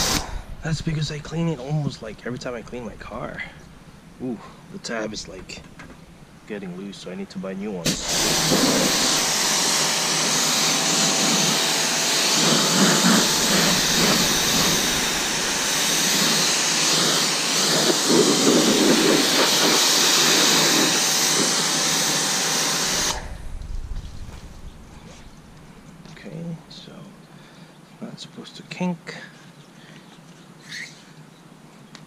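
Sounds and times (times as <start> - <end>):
pressure washer spraying water: 0.0 - 0.3, 7.8 - 23.4.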